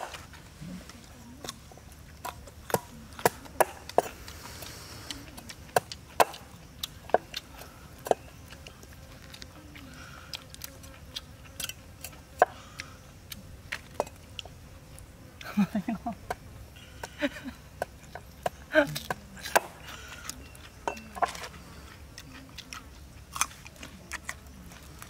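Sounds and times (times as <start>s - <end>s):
cleaver chopping on wooden board: 5.7s - 6.5s, 18.4s - 19.8s.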